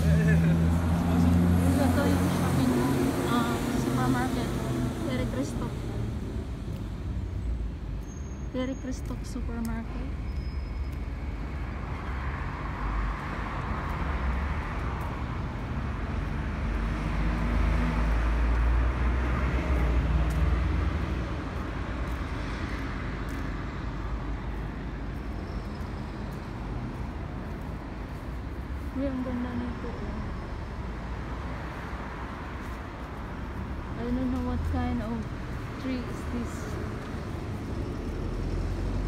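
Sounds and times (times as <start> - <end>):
vehicle passing: 0.0 - 7.4, 11.6 - 39.0
road traffic rumble: 0.0 - 39.0.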